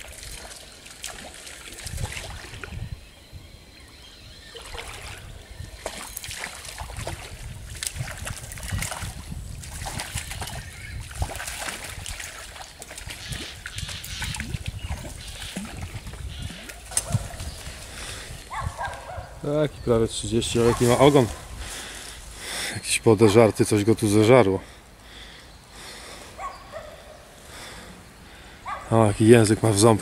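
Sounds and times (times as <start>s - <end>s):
stream water trickling: 0.0s - 3.1s, 4.4s - 18.7s
fish splashing at water surface: 4.6s - 18.0s.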